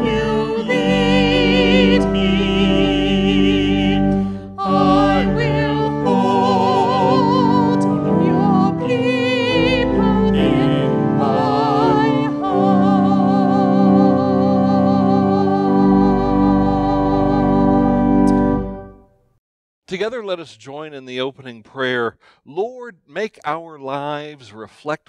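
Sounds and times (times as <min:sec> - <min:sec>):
voices singing a hymn: 0:00.0 - 0:18.0
sustained accompaniment: 0:00.0 - 0:19.0.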